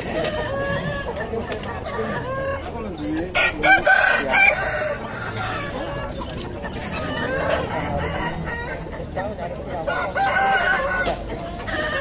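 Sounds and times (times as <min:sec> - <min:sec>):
roosters crowing and clucking: 0:00.0 - 0:12.0.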